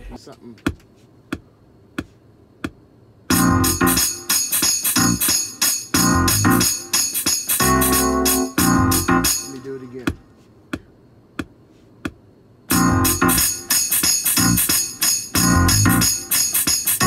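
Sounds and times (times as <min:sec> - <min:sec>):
hip-hop beat with keyboard chords: 0:03.3 - 0:10.1, 0:12.7 - 0:17.0.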